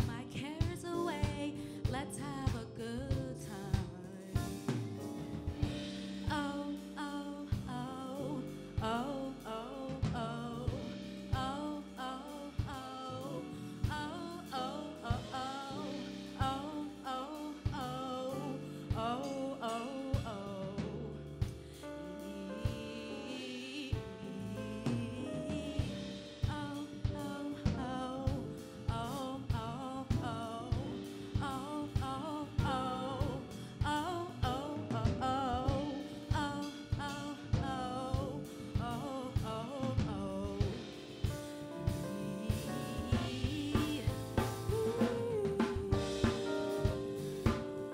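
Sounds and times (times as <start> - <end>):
woman singing: 0.0 - 4.9, 5.5 - 47.9
steady drum beat: 0.0 - 23.1, 23.9 - 47.9
live band playing: 4.4 - 6.9, 40.6 - 47.9.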